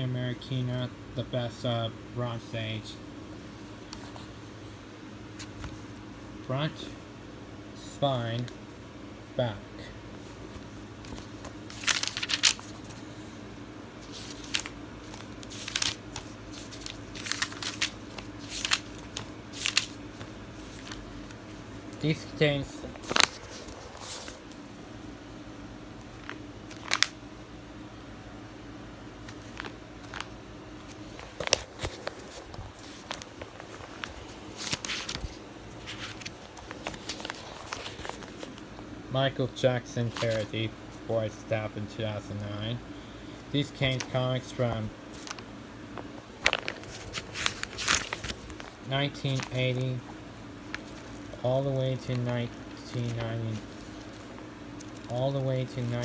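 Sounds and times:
faint steady hum: 0:00.0 - 0:56.0
comic book pages turning: 0:10.5 - 0:13.3, 0:14.0 - 0:21.4, 0:22.0 - 0:24.6, 0:26.2 - 0:27.2, 0:29.2 - 0:38.8, 0:40.0 - 0:40.6, 0:43.6 - 0:45.4, 0:46.0 - 0:56.0
paper rustle: 0:10.5 - 0:13.4, 0:14.0 - 0:21.4, 0:22.8 - 0:24.5, 0:26.2 - 0:27.2, 0:29.2 - 0:38.7, 0:40.0 - 0:40.6, 0:43.6 - 0:45.4, 0:46.4 - 0:50.0, 0:50.6 - 0:56.0.

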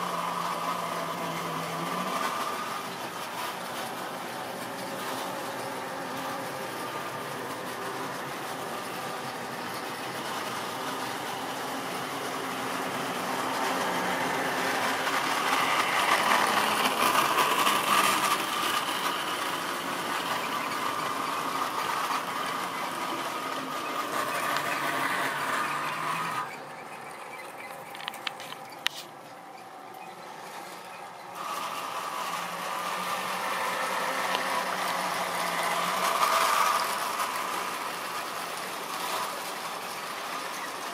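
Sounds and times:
model train motor hum: 0:00.0 - 0:40.9
wheels rattling over rails: 0:00.0 - 0:40.9
sharp clicks: 0:27.6 - 0:29.1.

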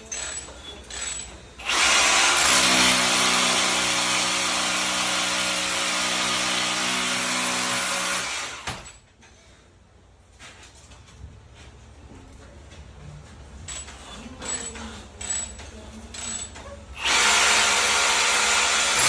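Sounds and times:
hammer drill drilling concrete: 0:00.1 - 0:08.7, 0:17.0 - 0:19.0.

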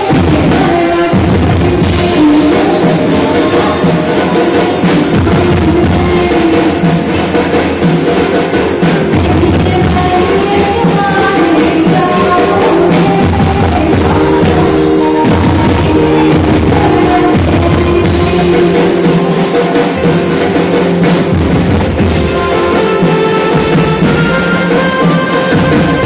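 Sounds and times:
drums keeping a beat: 0:00.0 - 0:26.0
held melodic lines: 0:07.9 - 0:26.0.

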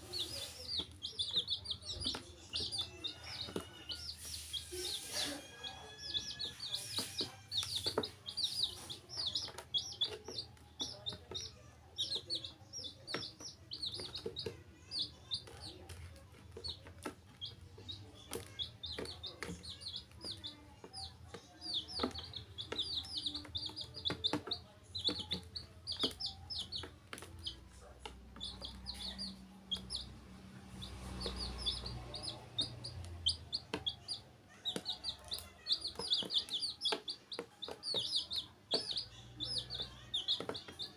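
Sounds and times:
baby chicks peeping: 0:00.0 - 0:40.9
beaks pecking on plastic: 0:00.0 - 0:40.9.

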